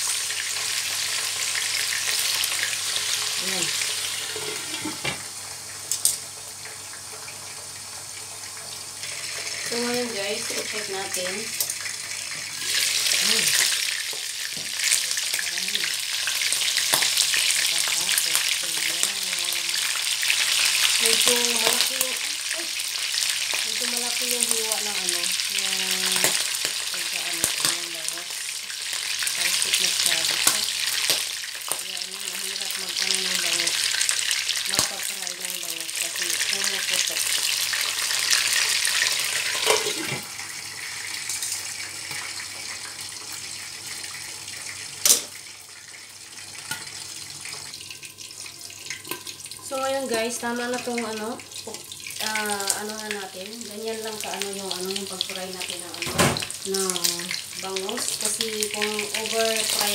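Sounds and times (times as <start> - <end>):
fish sizzling in hot oil: 0.0 - 59.9.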